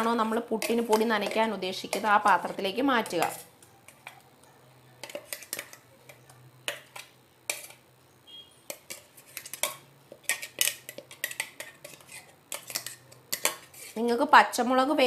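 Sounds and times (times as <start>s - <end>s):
metal spoon scraping steel jar: 0.0s - 4.2s, 8.6s - 14.1s.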